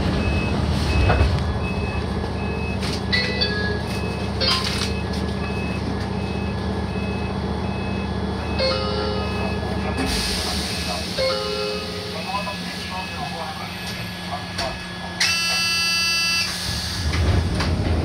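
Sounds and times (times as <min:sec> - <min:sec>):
electric train humming: 0:07.4 - 0:18.0
short electronic beeps: 0:15.2 - 0:16.5.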